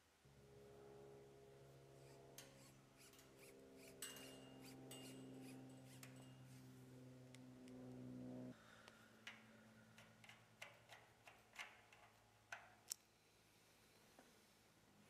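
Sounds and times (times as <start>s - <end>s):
low steady hum: 0.0s - 15.0s
small metal clicks and ticks: 2.4s - 6.5s, 8.8s - 13.1s.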